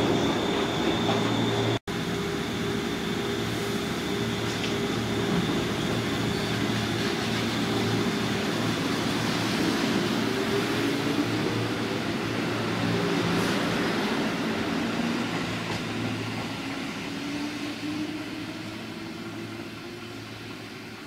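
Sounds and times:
train moving off: 0.0s - 21.0s
electric train equipment humming: 1.6s - 20.7s.

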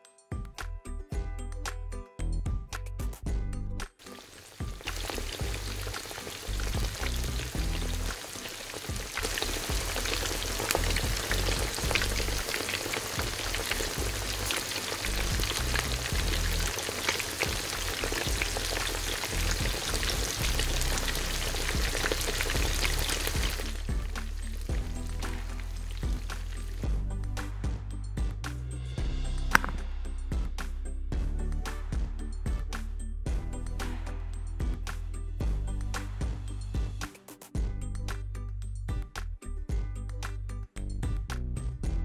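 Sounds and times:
food deep-frying in oil: 4.0s - 26.9s.

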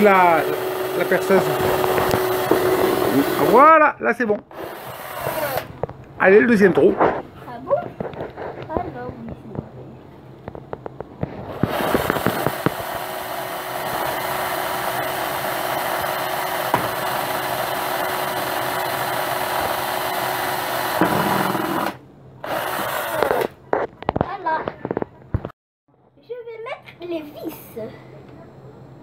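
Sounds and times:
cordless drill boring into wood: 0.0s - 3.6s, 4.5s - 5.7s, 11.6s - 23.5s.

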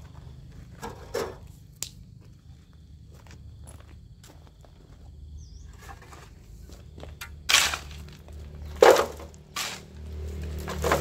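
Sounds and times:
shovel scraping soil and rubble: 0.8s - 1.6s, 5.6s - 11.0s.

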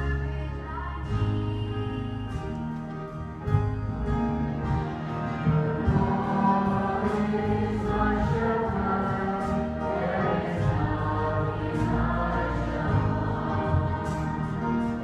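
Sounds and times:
girl singing a church song: 0.0s - 2.6s
instrumental accompaniment: 0.0s - 15.0s
voices singing along: 4.6s - 15.0s.

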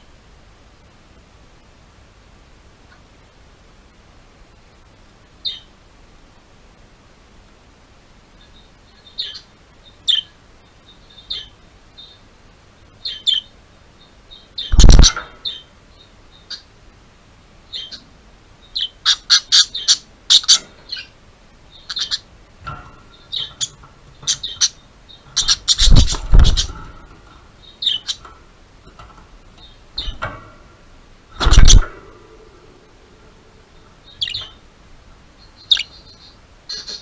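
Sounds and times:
budgerigars chirping: 8.6s - 9.5s, 13.0s - 13.5s, 14.3s - 15.7s, 17.7s - 18.0s, 18.6s - 21.1s, 21.7s - 22.3s, 23.1s - 26.8s, 27.6s - 28.3s, 34.0s - 34.6s, 35.4s - 37.0s
loud thumps: 25.4s - 27.0s, 31.4s - 32.1s.

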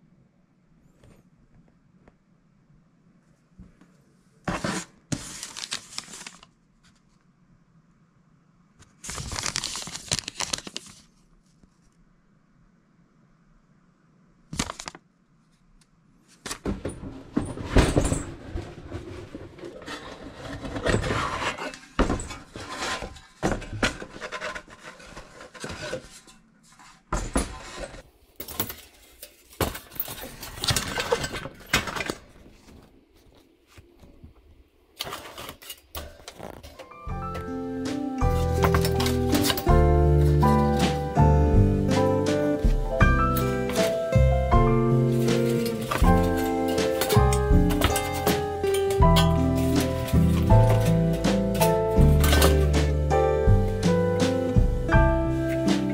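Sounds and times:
metal tools clattering: 38.4s - 40.9s, 45.2s - 53.0s.

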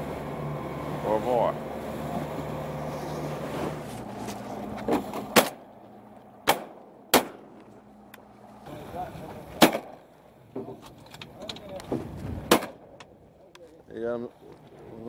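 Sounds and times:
boat engine running: 0.0s - 10.6s.

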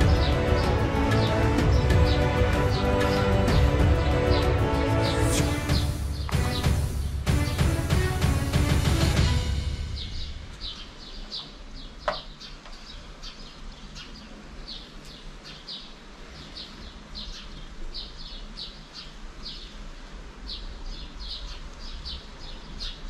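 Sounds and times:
small birds chirping: 0.0s - 7.5s, 9.9s - 23.0s.

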